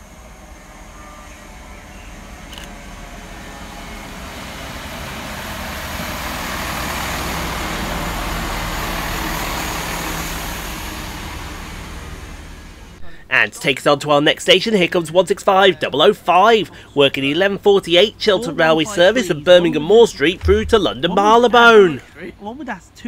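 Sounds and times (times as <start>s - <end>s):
diesel train passing: 0.0s - 13.0s, 18.6s - 22.2s.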